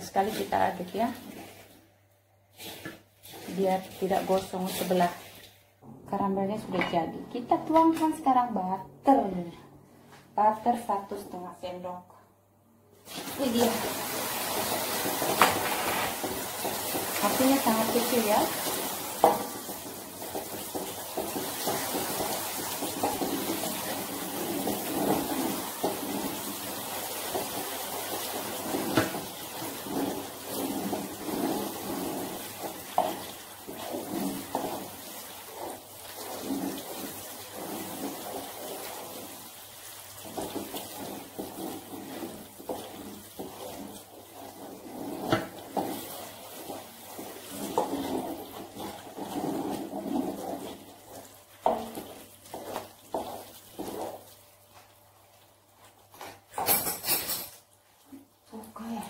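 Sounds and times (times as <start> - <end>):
wooden spoon scraping a pan: 0.0 - 1.8, 2.5 - 5.6, 13.3 - 56.5
caramel bubbling and sizzling: 0.0 - 9.4, 13.0 - 59.0.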